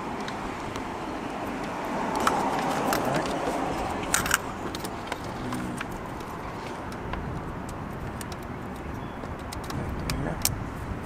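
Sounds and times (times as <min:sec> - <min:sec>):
steady background noise: 0:00.0 - 0:11.0.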